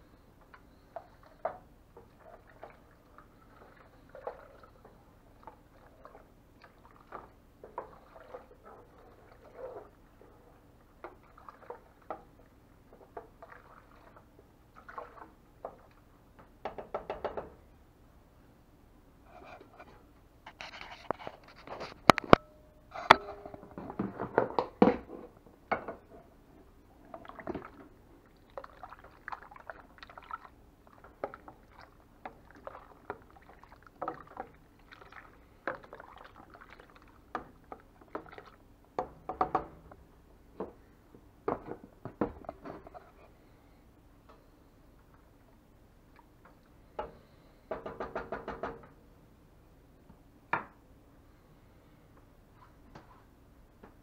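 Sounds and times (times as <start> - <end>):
liquid sloshing: 0.9 - 10.2, 11.0 - 12.2, 13.1 - 16.0, 27.0 - 38.6.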